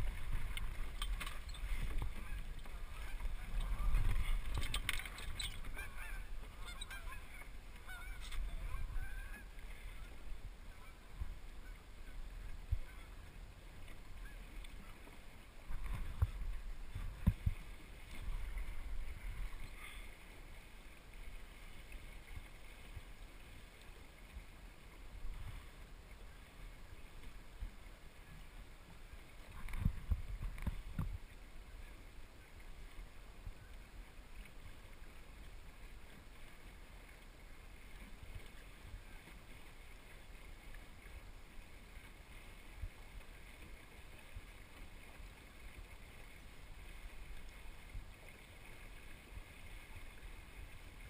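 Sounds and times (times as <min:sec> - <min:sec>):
water noise: 0:00.0 - 0:51.0
wind: 0:00.0 - 0:51.0
short wavering calls: 0:04.7 - 0:10.2.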